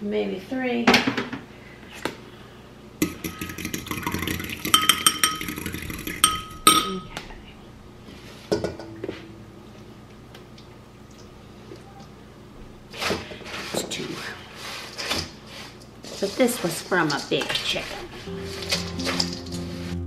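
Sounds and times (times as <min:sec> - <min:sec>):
ringing taps: 0:04.7 - 0:07.2.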